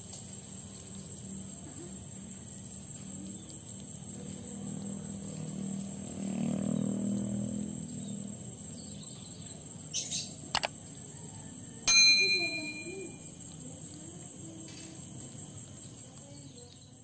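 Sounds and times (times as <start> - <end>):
bright bell ding: 11.9 - 13.3.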